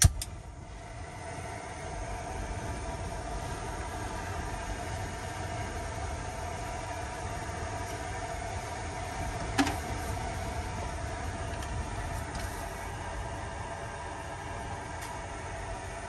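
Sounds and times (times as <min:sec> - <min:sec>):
sharp click: 0:00.0 - 0:00.3
storm wind and rain on a van: 0:00.0 - 0:16.0.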